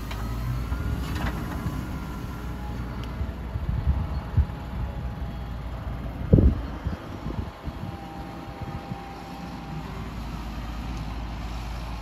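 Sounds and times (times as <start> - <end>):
tractor diesel engine rumble: 0.0 - 12.0.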